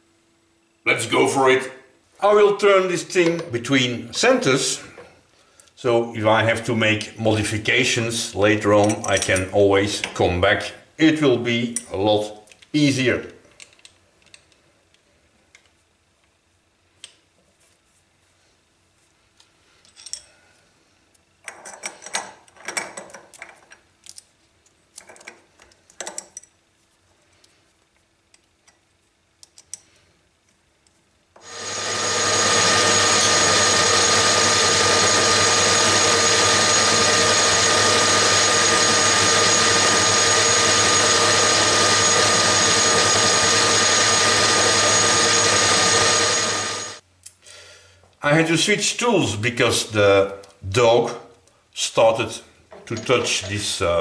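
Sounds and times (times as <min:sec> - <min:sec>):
small metal clicks and rattles: 0:13.6 - 0:15.8, 0:21.4 - 0:26.6, 0:28.3 - 0:29.9
metal lathe running: 0:31.4 - 0:47.0.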